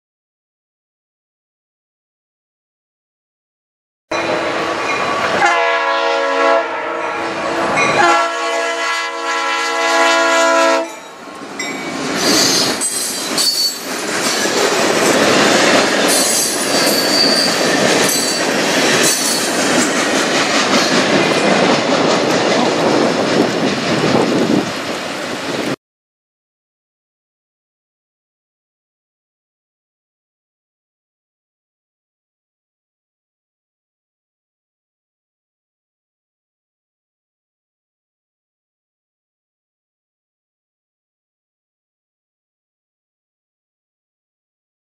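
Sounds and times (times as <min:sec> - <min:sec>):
locomotive air horn blasts: 0:05.3 - 0:11.0
freight cars rolling on rails: 0:10.8 - 0:25.8
wheel squeals: 0:11.0 - 0:20.0.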